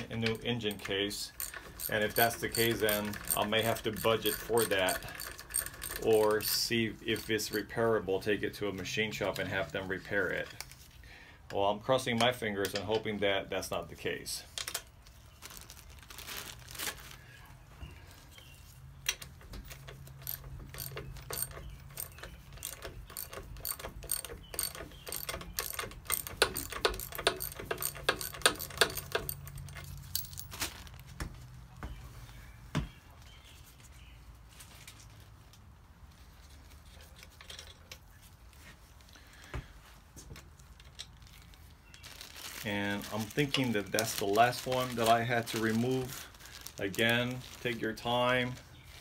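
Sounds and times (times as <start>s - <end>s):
ratchet wrench clicking: 0.3s - 7.7s, 19.8s - 30.3s.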